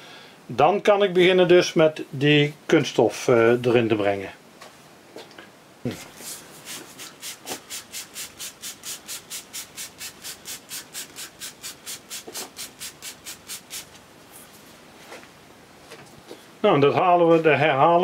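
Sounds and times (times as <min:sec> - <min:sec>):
spray bottle squirting water: 0:06.1 - 0:14.0.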